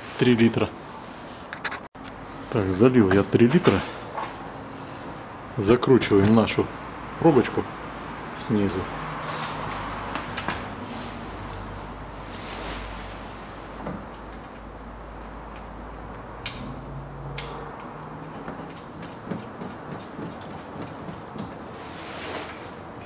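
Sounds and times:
small irregular ticks and knocks: 0:17.4 - 0:21.6.

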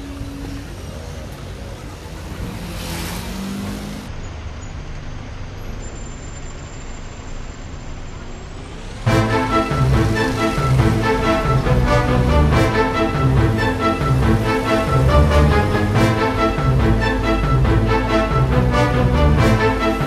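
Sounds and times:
low engine hum: 0:00.0 - 0:20.0
slow-moving street traffic: 0:00.0 - 0:20.0
loud background music: 0:09.1 - 0:20.0.

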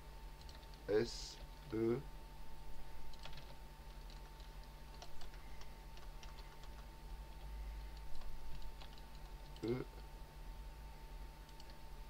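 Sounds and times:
faint steady hum: 0:00.0 - 0:12.0
keyboard keystrokes: 0:03.1 - 0:05.4.

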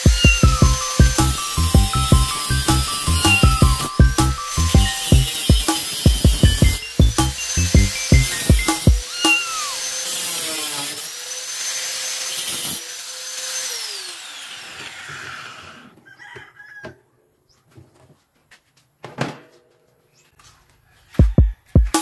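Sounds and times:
angle grinder cutting metal: 0:00.0 - 0:15.9.

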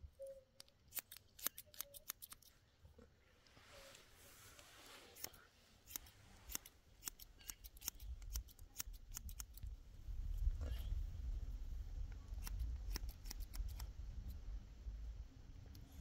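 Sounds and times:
scissors snipping hair: 0:00.6 - 0:02.6, 0:05.2 - 0:09.7, 0:12.4 - 0:13.9.

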